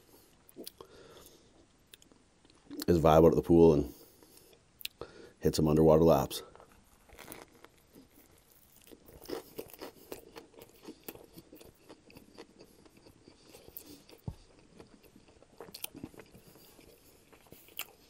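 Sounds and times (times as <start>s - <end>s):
chewing sandwich: 6.4s - 18.0s.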